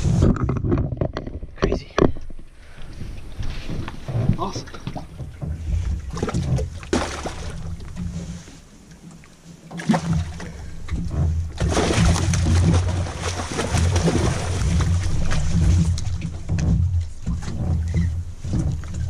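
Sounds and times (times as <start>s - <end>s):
fish thrashing and splashing: 3.7s - 8.1s, 9.7s - 19.0s.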